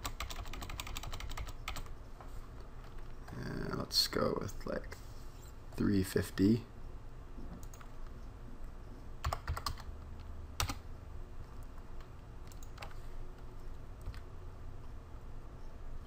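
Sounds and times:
computer keyboard keys clicking: 0.0 - 1.9, 9.2 - 9.9, 10.6 - 10.8, 12.0 - 13.0, 14.0 - 14.2.

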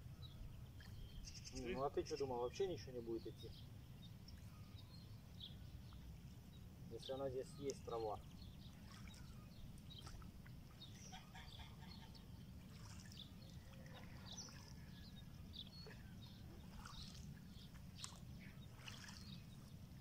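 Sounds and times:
faint bird chirps: 0.0 - 19.7.

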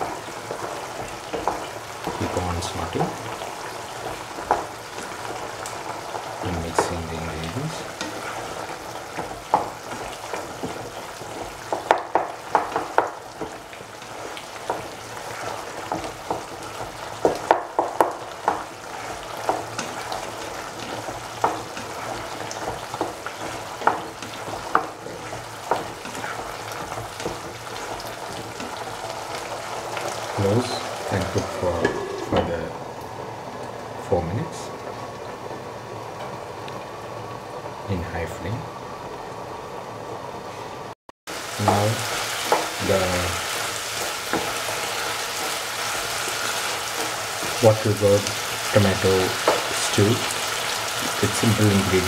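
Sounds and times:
stew sizzling in pan: 0.0 - 52.0
spatula scraping pan: 14.0 - 16.9, 18.5 - 32.5.

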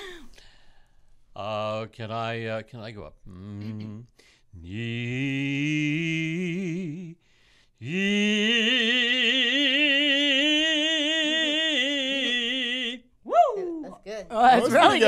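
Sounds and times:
man breathing: 0.0 - 1.3, 4.2 - 4.6, 7.2 - 7.8.

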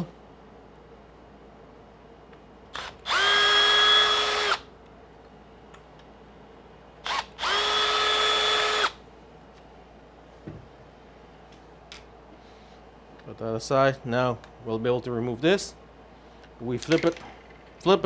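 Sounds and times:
cordless screwdriver motor whine: 2.8 - 4.6, 7.0 - 9.0.

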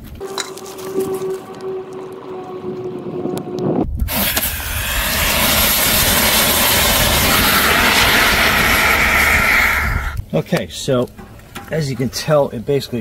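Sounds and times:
fire extinguisher hissing: 4.0 - 10.2.

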